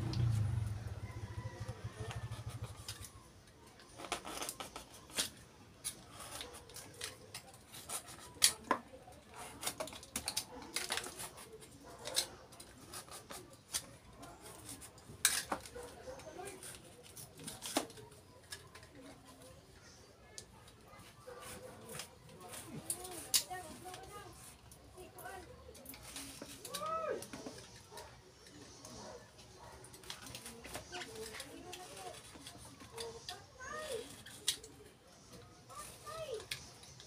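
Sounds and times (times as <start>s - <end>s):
scissors snipping coconut husk: 0.0s - 3.2s.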